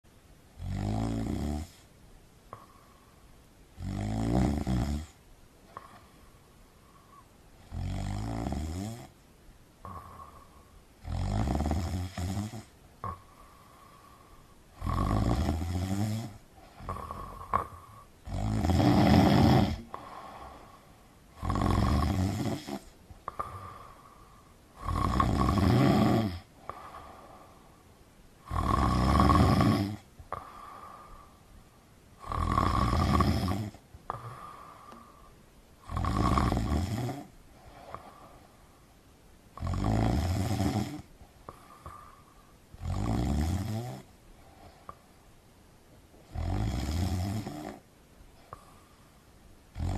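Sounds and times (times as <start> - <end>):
person snoring: 0.6 - 1.9, 3.8 - 6.1, 7.0 - 9.2, 9.8 - 27.8, 28.4 - 31.4, 32.2 - 38.5, 39.5 - 44.1, 46.3 - 47.8.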